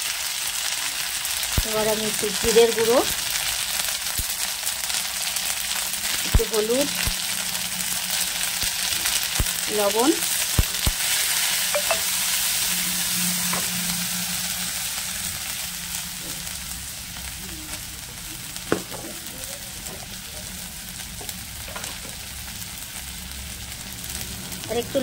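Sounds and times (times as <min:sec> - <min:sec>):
spices sizzling in hot oil: 0:00.0 - 0:25.0.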